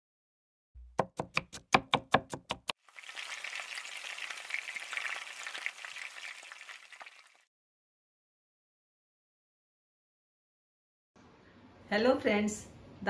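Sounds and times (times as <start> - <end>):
knife chopping on cutting board: 0.8 - 2.7
food sizzling in frying pan: 2.8 - 7.5.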